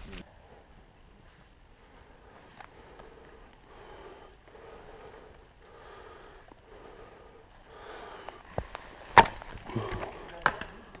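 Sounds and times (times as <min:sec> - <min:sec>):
person breathing: 0:01.7 - 0:10.3.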